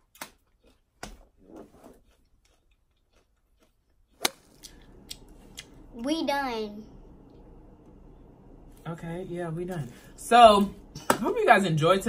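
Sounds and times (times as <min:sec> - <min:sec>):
crunchy apple chewing: 0:00.0 - 0:05.8.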